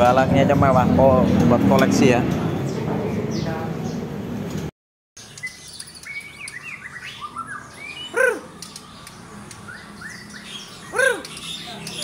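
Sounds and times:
bird singing whistled notes: 0:05.2 - 0:12.0.

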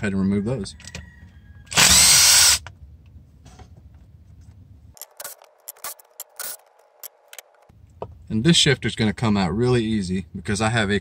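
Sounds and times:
power drill spinning: 0:01.7 - 0:02.7.

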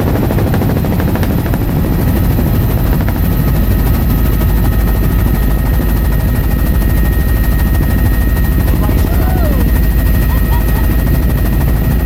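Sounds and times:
helicopter rotor and engine drone: 0:00.0 - 0:12.0
thin steady whine: 0:04.3 - 0:12.0.

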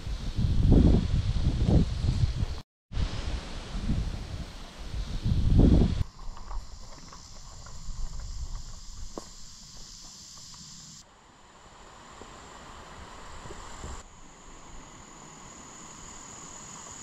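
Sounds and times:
wind rumble on microphone: 0:00.0 - 0:09.8
insects chirring: 0:04.3 - 0:17.0.

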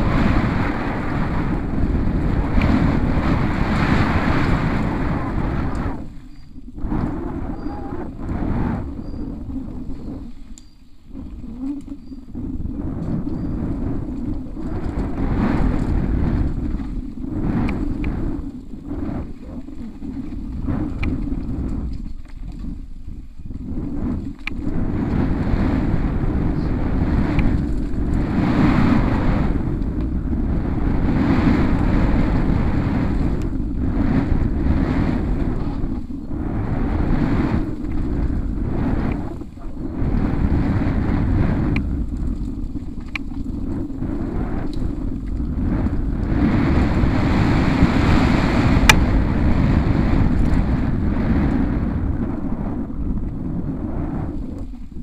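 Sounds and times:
bike clicks and rattles: 0:00.0 - 0:36.3, 0:37.2 - 0:50.6
wind buffeting microphone: 0:00.0 - 0:55.0.

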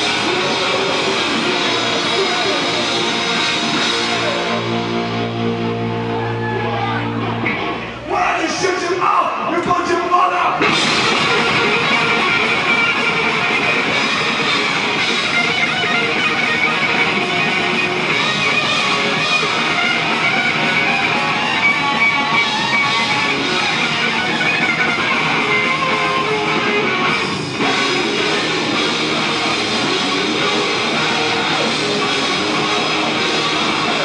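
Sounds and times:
drum kit: 0:00.0 - 0:06.6, 0:10.6 - 0:34.0
electric guitars: 0:00.0 - 0:08.1, 0:10.5 - 0:34.0.

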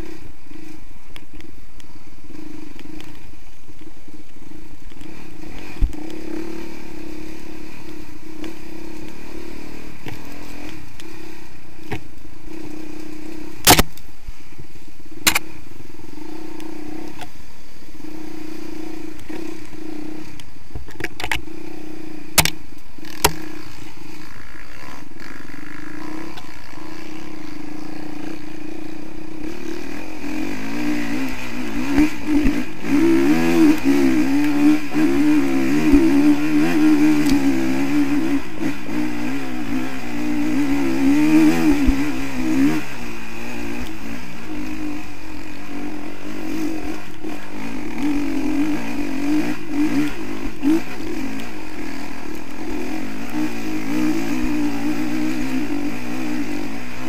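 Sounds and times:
dirt bike engine running: 0:00.0 - 0:57.0.

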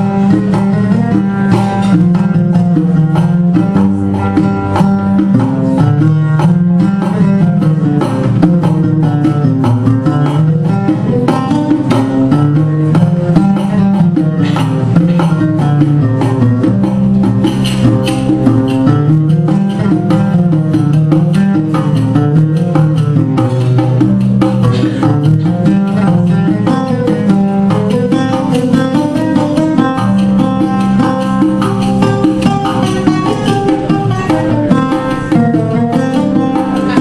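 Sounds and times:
oud melody: 0:00.0 - 0:37.0
tambourine beating a rhythm: 0:00.0 - 0:37.0.

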